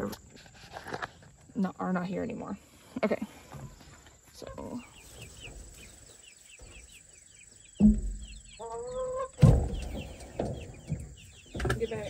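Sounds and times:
chicks peeping: 3.6 - 12.0
sudden thump: 7.8 - 8.5, 9.4 - 11.8
chicken drawn-out call: 8.5 - 9.4.

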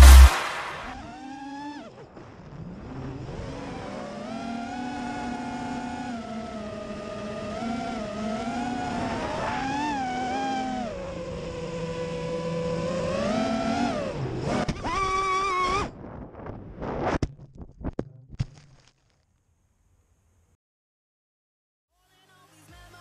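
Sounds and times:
drone crashing into grass: 0.0 - 1.1.

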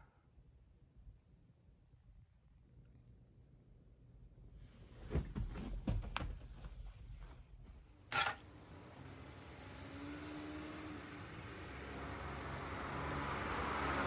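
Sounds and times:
soft knocks and rustles: 4.9 - 7.8.

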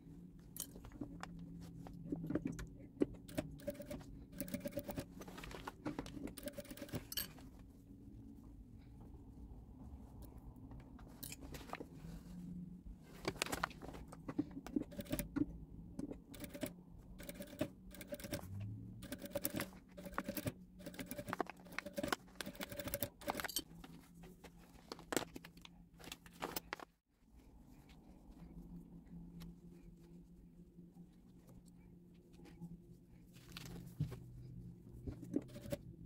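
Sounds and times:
sewing machine stitching: 3.2 - 5.2, 6.3 - 7.3, 14.8 - 15.4, 16.2 - 23.5.

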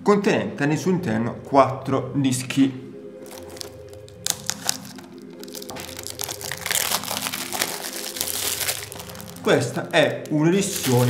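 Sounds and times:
plastic wrap crinkling: 3.2 - 11.0.

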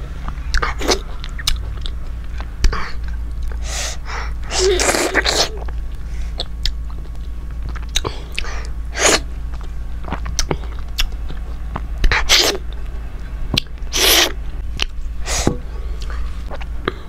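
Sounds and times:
wet lip smacks and chewing: 0.2 - 3.6
breathy bursts: 3.6 - 6.4.

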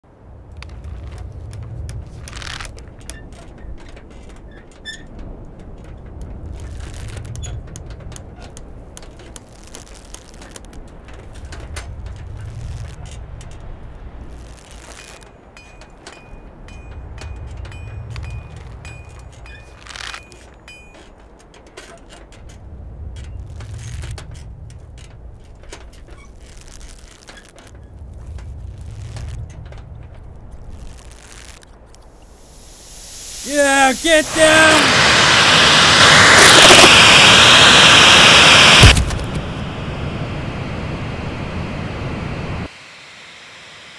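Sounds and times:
clanks and creaks of wood and metal: 0.6 - 14.2, 14.8 - 32.2
drilling rig low rumble: 32.0 - 42.7.

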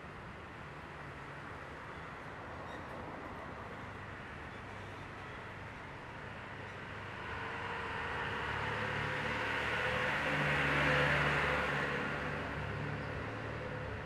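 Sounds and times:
passing motor vehicle: 7.0 - 14.0.

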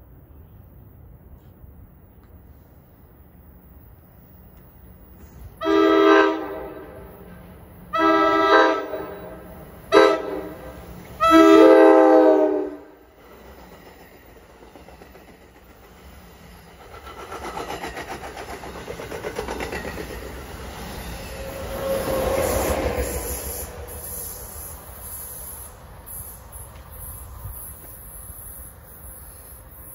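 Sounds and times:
train chime horn blasts: 5.6 - 7.2, 7.9 - 13.0
train wheels clattering over rails: 13.1 - 25.2.

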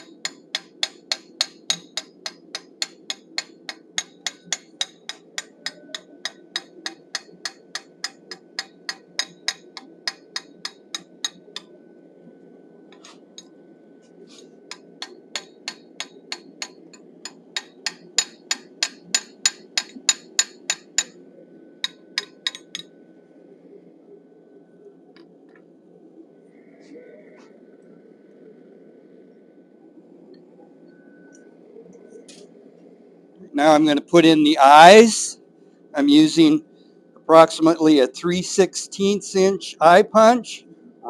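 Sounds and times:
hammer striking steel tool: 0.0 - 11.7, 14.7 - 21.2, 21.8 - 22.9
faint high metallic ring: 30.9 - 31.5.

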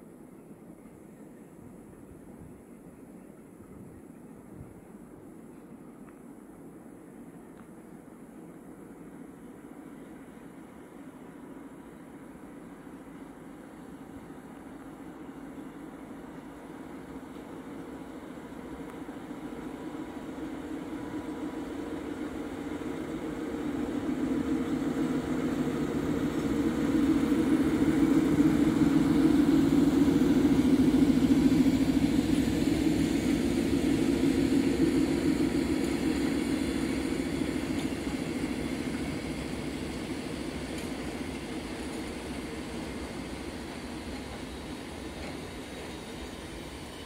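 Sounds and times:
diesel locomotive engine hum: 0.0 - 47.0
train wagons rolling: 15.8 - 47.0.

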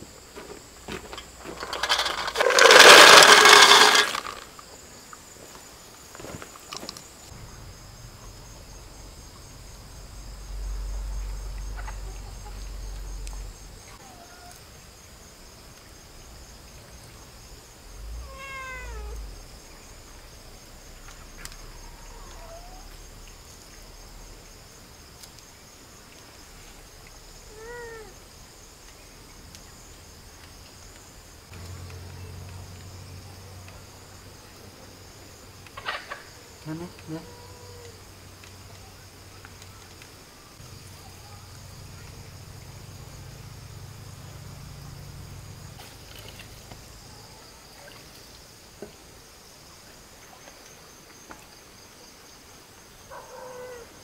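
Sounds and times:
faint buzz of insects: 0.0 - 54.0
pet crying: 18.2 - 19.2.

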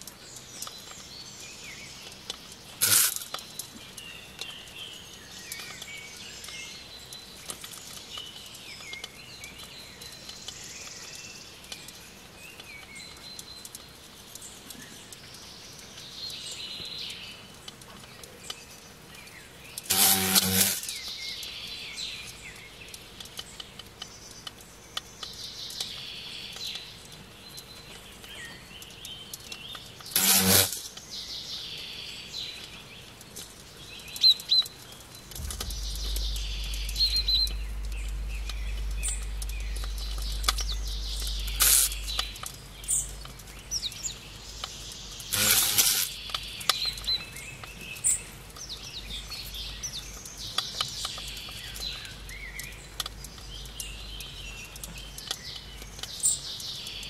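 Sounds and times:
short loud buzz: 19.9 - 20.9, 30.2 - 30.8, 35.4 - 42.4, 45.3 - 46.1
birds chirping: 33.8 - 57.0.

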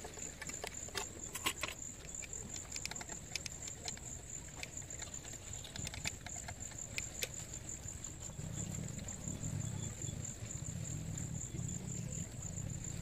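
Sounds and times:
sharp clicks: 0.0 - 7.4
insect trill: 0.0 - 13.0.

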